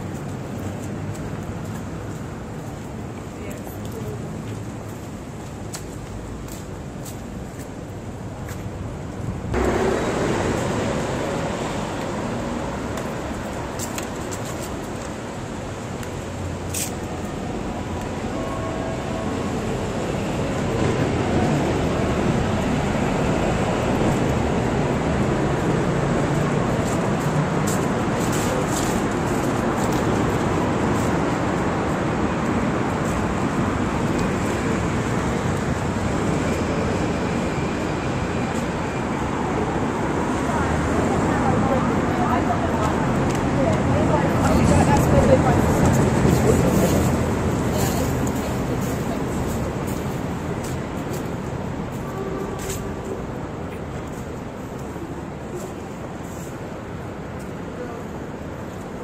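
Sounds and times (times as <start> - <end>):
city road traffic: 0.0 - 59.0
heavy vehicle passing: 9.5 - 13.8.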